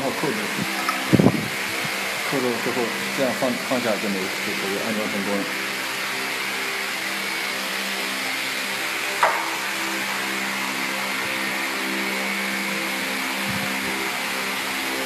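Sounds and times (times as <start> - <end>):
machine hum: 0.0 - 15.0
sharp knock: 9.2 - 9.5.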